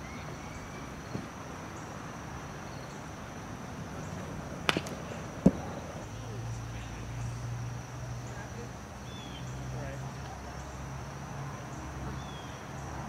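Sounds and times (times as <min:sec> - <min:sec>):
insects droning: 0:00.0 - 0:13.0
baseball cracking into mitt: 0:04.6 - 0:05.7
sharp smack: 0:04.7 - 0:05.6.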